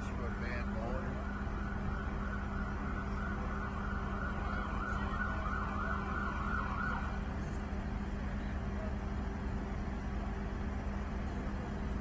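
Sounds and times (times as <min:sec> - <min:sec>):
siren wavering: 0:00.0 - 0:07.2.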